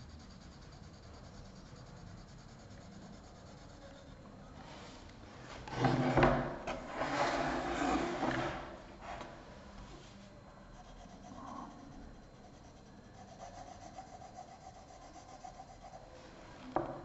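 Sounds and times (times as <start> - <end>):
wooden board scraping on table: 5.5 - 9.4.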